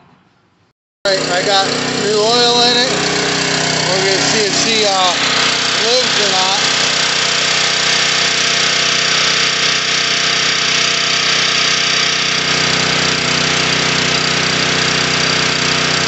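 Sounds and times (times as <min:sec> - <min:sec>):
generator engine running: 0:01.1 - 0:16.0.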